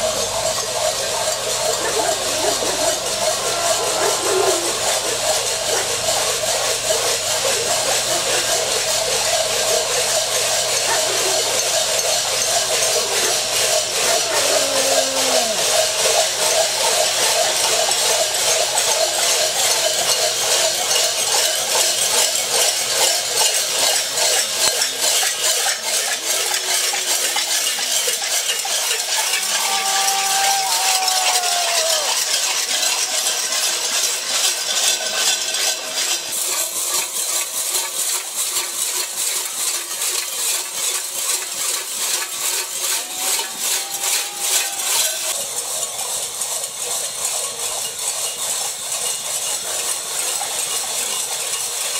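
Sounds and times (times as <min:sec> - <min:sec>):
metallic jingling and clattering: 0:00.0 - 0:38.2, 0:39.0 - 0:51.9
rising and falling calls: 0:01.1 - 0:05.9, 0:12.2 - 0:16.0.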